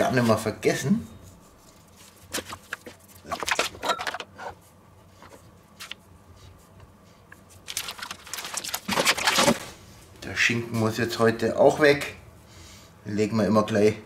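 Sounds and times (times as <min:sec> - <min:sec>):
paper bag rustling: 0:07.5 - 0:09.8.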